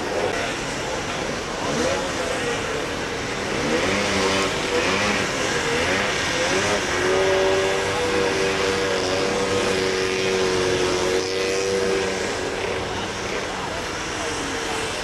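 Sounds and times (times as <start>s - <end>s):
snowmobile engines droning: 0.0s - 15.0s.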